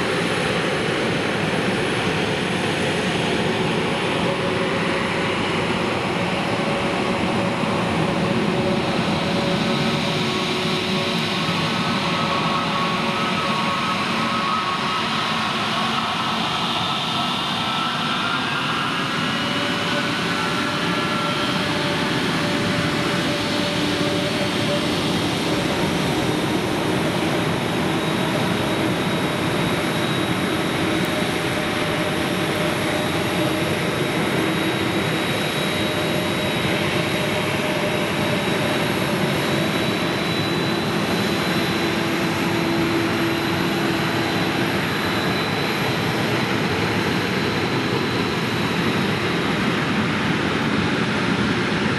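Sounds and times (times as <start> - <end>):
jet engines running at low power: 0.0 - 51.9.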